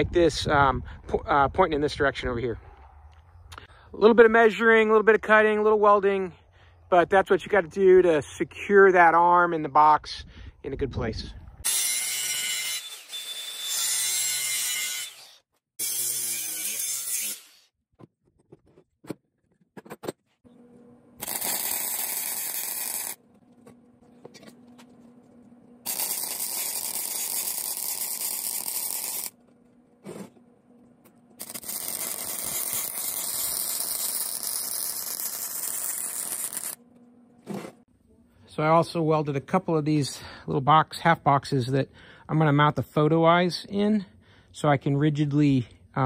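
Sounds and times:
angle grinder cutting steel: 11.6s - 17.7s, 21.2s - 23.2s, 25.9s - 29.4s, 31.4s - 36.8s
welder welding: 11.7s - 17.7s, 21.2s - 23.2s, 25.8s - 29.4s, 31.4s - 36.8s.

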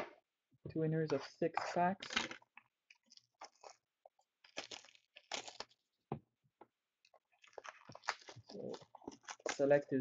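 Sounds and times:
packaging crinkling and rustling: 2.1s - 5.8s, 7.2s - 9.9s.

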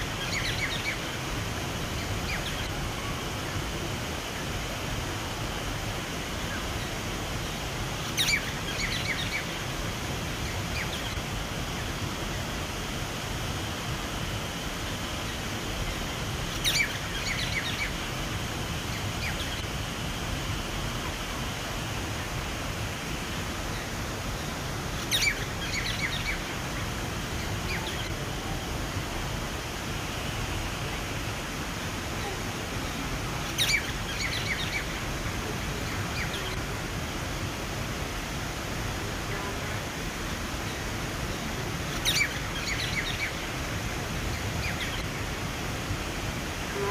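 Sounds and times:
water running over a cascade: 0.0s - 46.9s
bird chirping: 16.5s - 18.0s, 33.4s - 35.0s, 41.9s - 43.4s.

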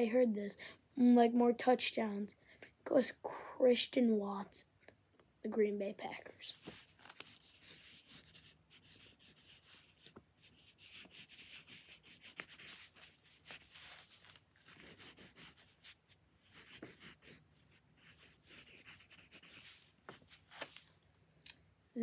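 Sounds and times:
pencil writing on paper: 6.7s - 14.0s, 14.6s - 19.8s.

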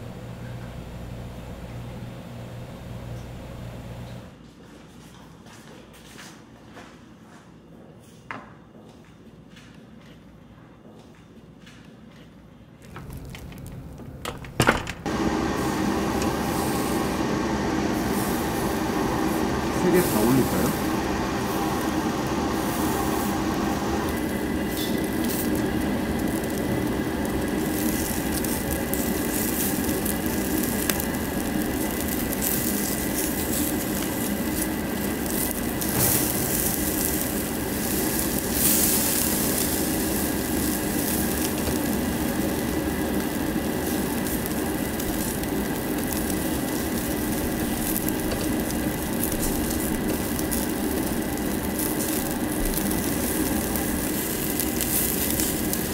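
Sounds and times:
steady mechanical hum: 0.0s - 55.9s
meat sizzling on a grill: 15.0s - 55.9s.

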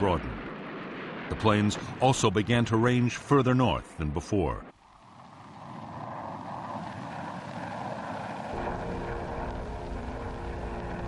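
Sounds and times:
jet engine noise: 0.0s - 11.0s
deep rumble: 5.0s - 11.0s
steady hum: 8.5s - 11.0s.

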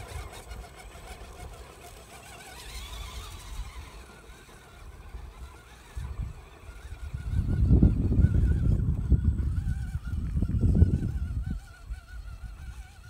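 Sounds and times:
small electric motor whining: 0.0s - 13.0s
wind rumble on microphone: 4.8s - 13.0s.

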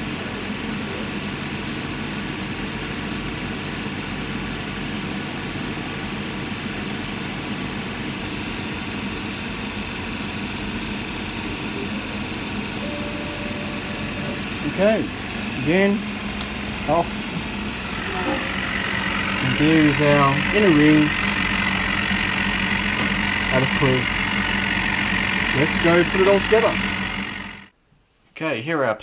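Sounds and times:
laser cutter machine drone: 0.0s - 27.7s
faint high whine: 11.4s - 27.7s.

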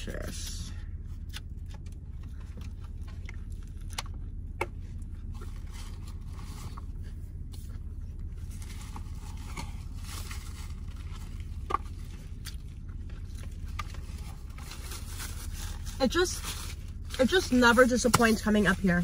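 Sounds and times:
steady low hum: 0.0s - 19.0s
person chewing: 1.1s - 6.2s, 11.6s - 14.6s.

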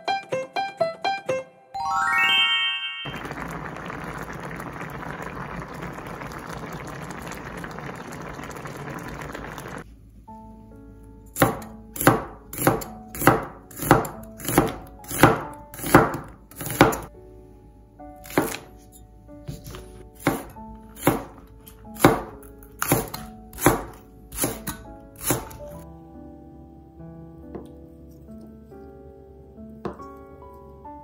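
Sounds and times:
soft background music: 0.0s - 3.1s, 9.9s - 31.0s
stew bubbling in a pot: 3.1s - 9.8s
cleaver chopping on cutting board: 11.4s - 17.1s, 18.3s - 18.6s, 19.6s - 21.4s, 22.0s - 25.8s.

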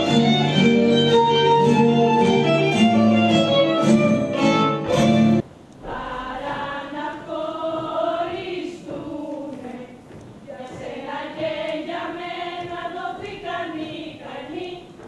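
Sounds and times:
fiddle melody: 0.0s - 5.4s
plucked string instruments: 0.0s - 5.4s
folk dance music: 0.0s - 15.0s
group singing: 5.8s - 15.0s.

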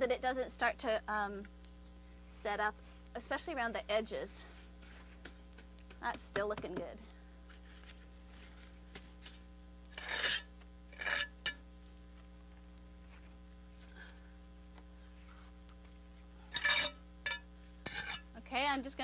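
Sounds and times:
trowel scraping mortar: 9.9s - 11.6s, 16.5s - 18.3s.

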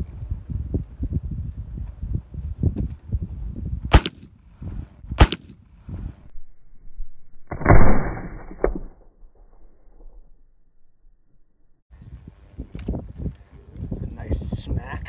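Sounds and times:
rifle shot boom: 3.9s - 4.4s, 5.2s - 6.0s, 7.5s - 10.4s.

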